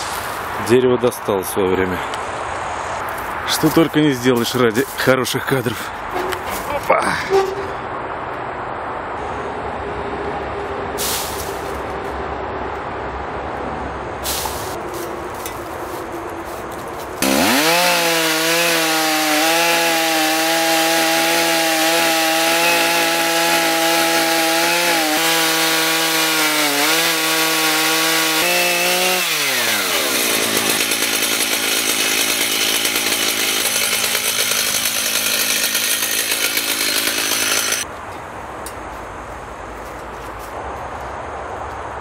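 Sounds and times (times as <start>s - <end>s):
chainsaw cutting wood: 17.2s - 37.9s.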